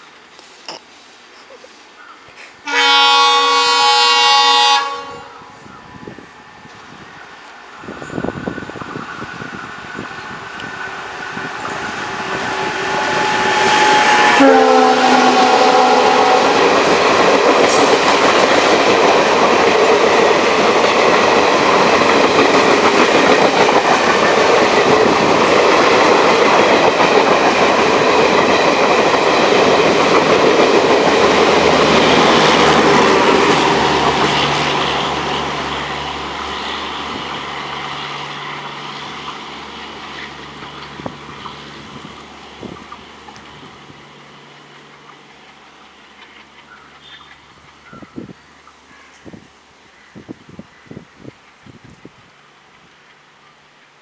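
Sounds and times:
locomotive horn: 0:02.6 - 0:06.2, 0:11.7 - 0:16.8
train coaches clattering over rails: 0:06.1 - 0:37.4.

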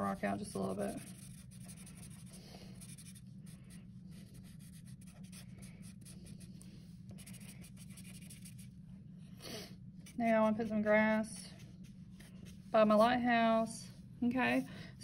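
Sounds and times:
marker scratching on paper: 0:00.0 - 0:06.5, 0:07.1 - 0:08.7, 0:10.0 - 0:13.1.

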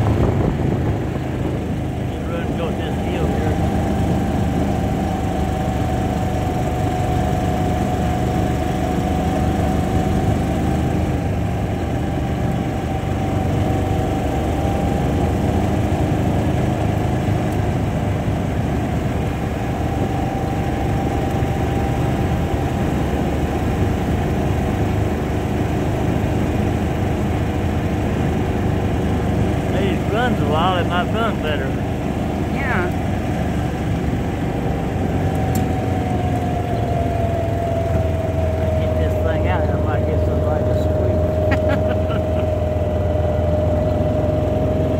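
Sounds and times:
engine drone with whine: 0:00.0 - 0:44.9.

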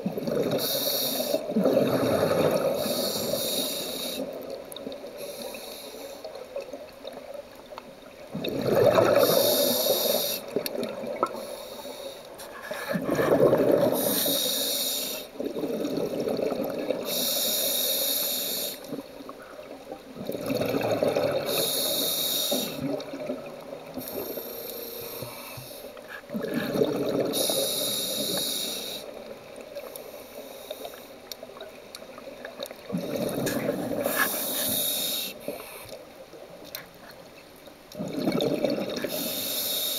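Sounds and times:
exhaust bubbles gushing: 0:08.4 - 0:09.4, 0:12.9 - 0:14.0, 0:20.2 - 0:21.6, 0:26.2 - 0:27.4, 0:38.0 - 0:39.1
diver breathing through regulator: 0:11.3 - 0:15.3, 0:21.4 - 0:22.9, 0:24.0 - 0:29.1, 0:33.0 - 0:36.0.

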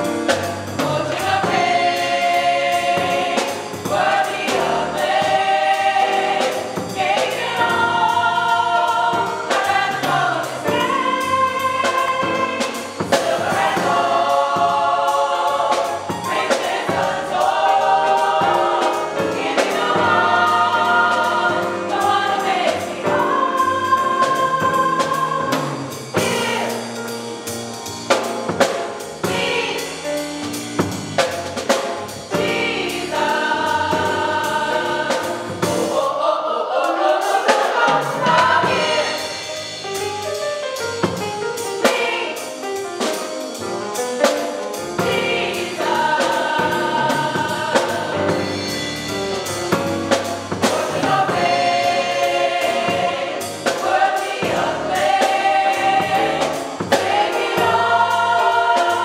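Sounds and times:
drums: 0:00.0 - 0:59.0
gospel choir singing: 0:00.0 - 0:59.0.

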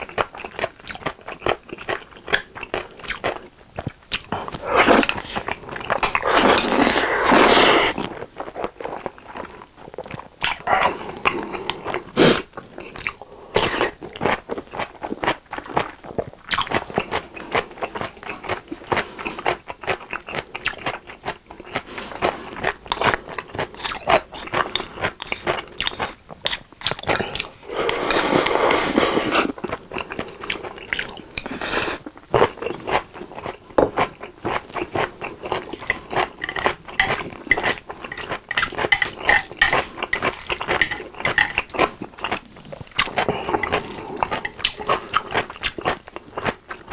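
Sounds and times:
wet mouth noises: 0:00.0 - 0:09.1, 0:09.9 - 0:33.1
crunchy chewing: 0:00.0 - 0:46.9
long slurp: 0:06.2 - 0:08.0.

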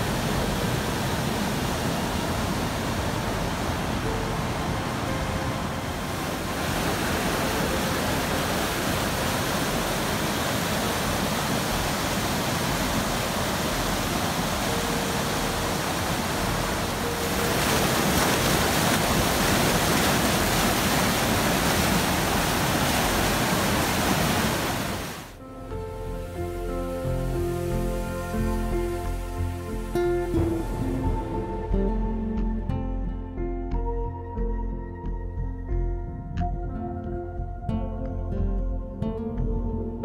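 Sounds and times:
water rushing over rocks: 0:00.0 - 0:25.4
music: 0:04.0 - 0:06.5, 0:13.8 - 0:18.7, 0:25.4 - 0:40.0.

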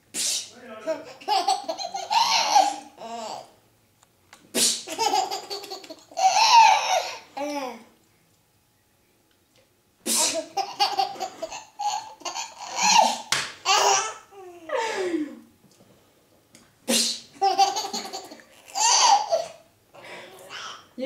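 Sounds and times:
woman fake sneezing: 0:00.1 - 0:00.5, 0:04.5 - 0:04.9, 0:10.0 - 0:10.5, 0:16.9 - 0:17.3
baby laughing: 0:00.9 - 0:03.5, 0:04.8 - 0:07.8, 0:10.2 - 0:14.3, 0:17.4 - 0:19.6.

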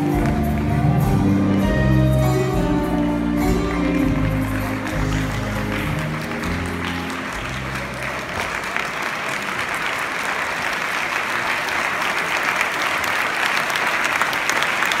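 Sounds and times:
audience applause: 0:00.0 - 0:02.2, 0:02.8 - 0:15.0
rumba music: 0:00.0 - 0:08.4.

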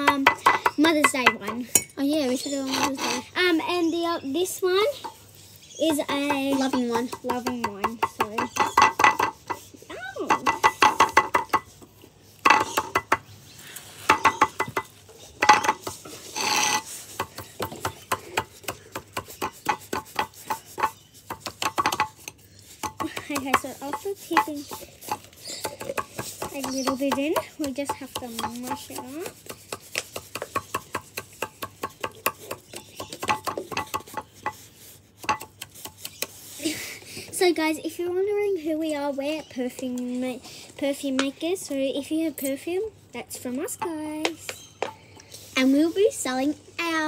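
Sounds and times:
stirring and mashing in small cup: 0:16.8 - 0:36.6.

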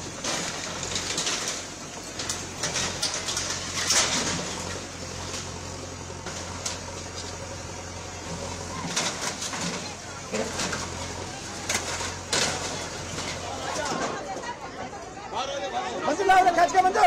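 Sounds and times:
diesel engine humming: 0:00.0 - 0:17.0
metal clanks and crashes: 0:00.1 - 0:04.8, 0:08.7 - 0:14.2.

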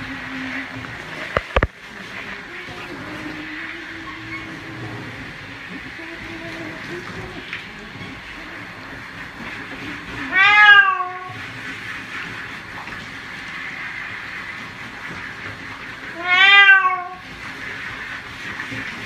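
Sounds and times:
cat meowing: 0:10.3 - 0:11.3, 0:16.2 - 0:17.2.

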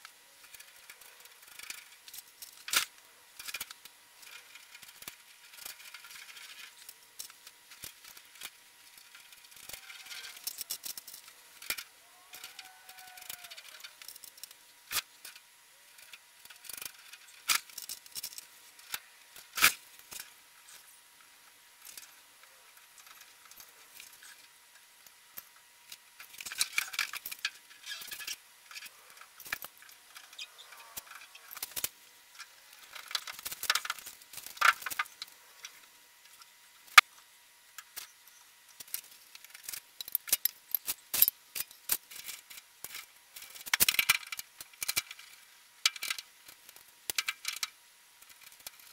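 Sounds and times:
sharp clicks and knocks: 0:31.0 - 0:37.1.

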